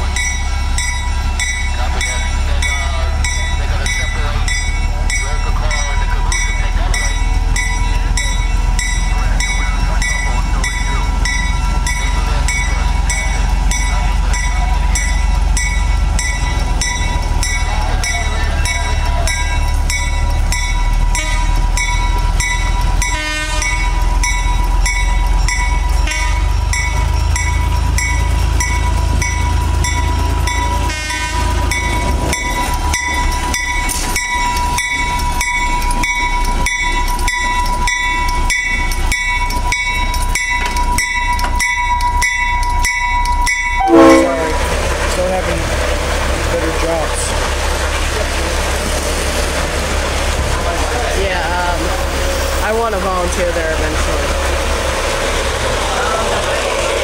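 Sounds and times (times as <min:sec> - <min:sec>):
diesel locomotive engine throbbing: 0:00.0 - 0:57.0
engine whine: 0:00.0 - 0:57.0.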